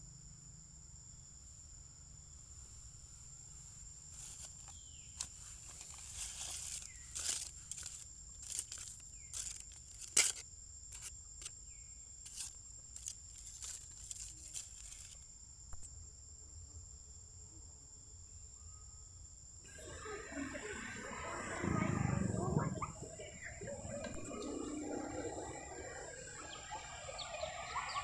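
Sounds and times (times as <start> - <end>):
insects droning: 0.0 - 28.0
short sharp insect chirps: 2.4 - 16.0.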